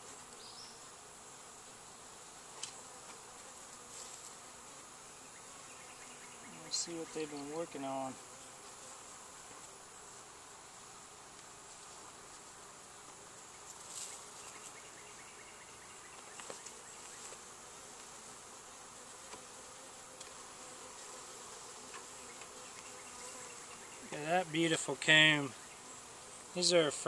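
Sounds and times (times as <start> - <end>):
bees buzzing: 0.0 - 27.0.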